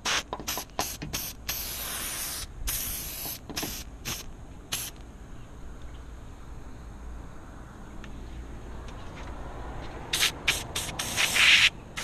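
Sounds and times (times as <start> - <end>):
aerosol spray can hissing: 0.0 - 5.0, 10.2 - 11.7.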